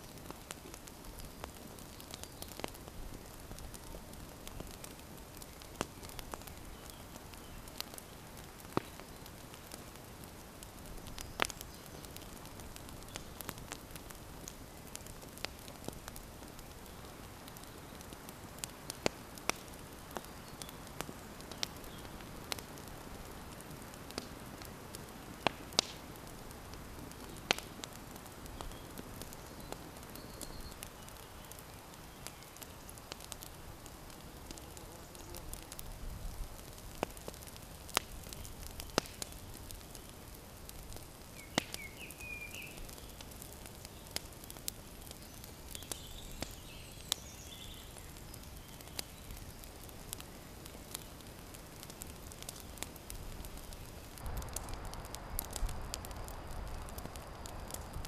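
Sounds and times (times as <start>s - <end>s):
campfire crackling and popping: 0.0s - 58.0s
steady hiss: 0.0s - 58.0s
bird chirping: 28.6s - 31.5s, 41.4s - 43.2s.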